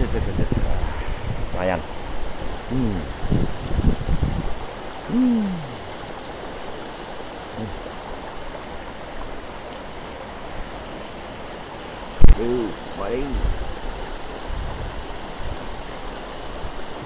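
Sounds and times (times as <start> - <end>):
river water flowing: 0.0 - 17.0
man humming: 2.7 - 3.2, 5.0 - 5.8, 7.6 - 7.8.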